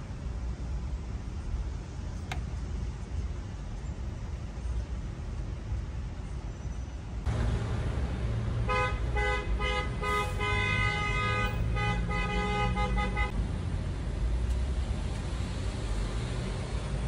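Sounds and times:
car horn tooting: 0:08.7 - 0:13.3.

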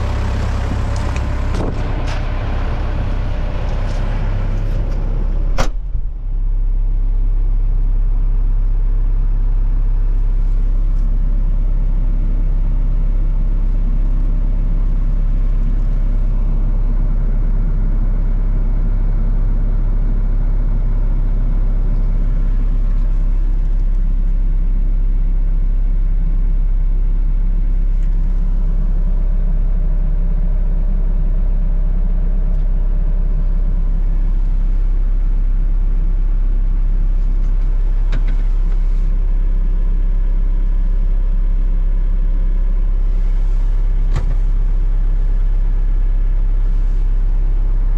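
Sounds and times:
excavator diesel engine idling: 0:00.0 - 0:47.9
sharp knock: 0:05.5 - 0:06.1.

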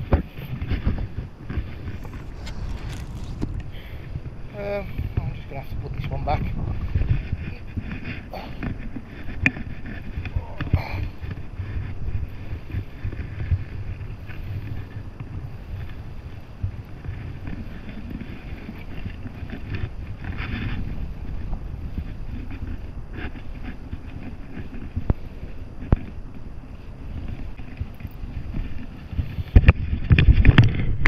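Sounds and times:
knocks and rustles of net: 0:00.0 - 0:11.8
water lapping and splashing: 0:00.0 - 0:31.0
wind buffeting microphone: 0:00.0 - 0:31.0.

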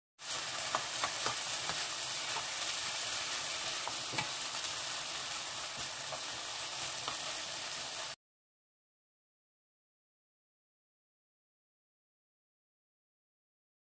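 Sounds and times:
vegetables sizzling in a frying pan: 0:00.2 - 0:08.2
wooden spatula scraping a pan: 0:00.3 - 0:04.6.

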